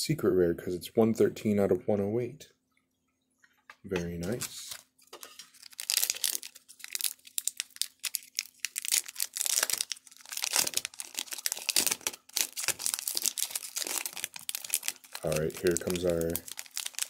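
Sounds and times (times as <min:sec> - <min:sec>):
foil wrapper crinkling: 0:04.2 - 0:17.0.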